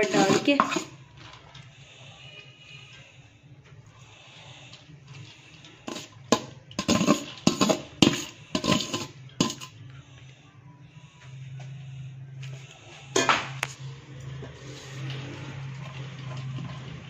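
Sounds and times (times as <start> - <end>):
metal utensil scraping a pot: 0.0 - 3.3, 4.0 - 9.8, 13.1 - 13.6, 14.4 - 17.0.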